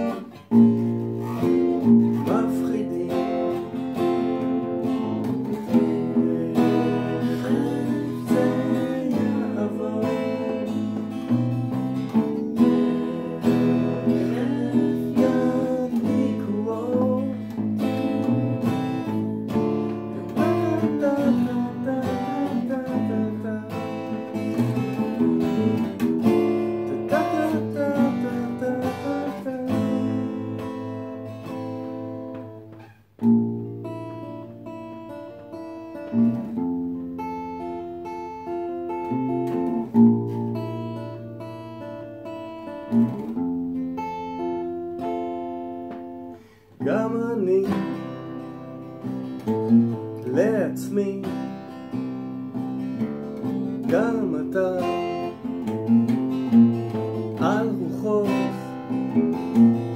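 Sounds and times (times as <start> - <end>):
acoustic bass line: 0.0 - 32.7
acoustic guitar strumming chords: 0.0 - 59.9.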